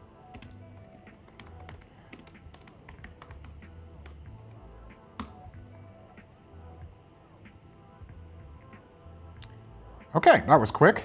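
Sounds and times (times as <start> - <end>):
computer keyboard typing: 0.3 - 4.6.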